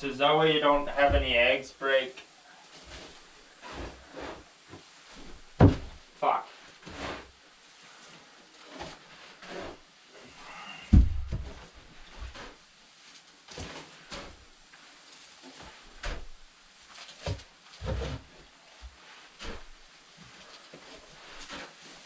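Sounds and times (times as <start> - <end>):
wood shavings rustling: 0.0 - 22.0
dull knocks: 5.6 - 6.0.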